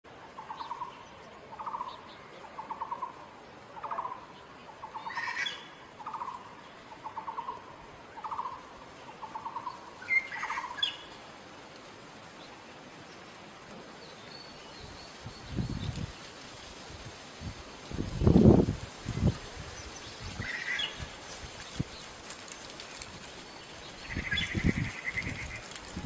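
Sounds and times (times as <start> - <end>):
higher harsh bird calls: 3.8 - 11.1
magpie rattling calls: 4.9 - 6.4.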